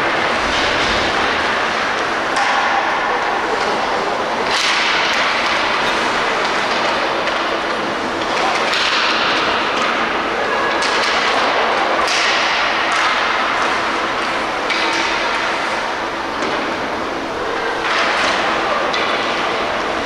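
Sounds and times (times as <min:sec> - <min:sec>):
hockey stick clacking on puck: 0:02.0 - 0:02.9, 0:04.4 - 0:07.6, 0:08.2 - 0:10.0, 0:10.8 - 0:15.8.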